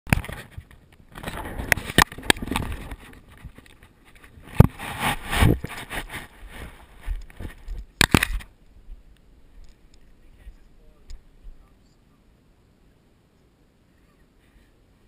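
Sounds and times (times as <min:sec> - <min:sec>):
rubbing and rustling: 0:00.2 - 0:08.5.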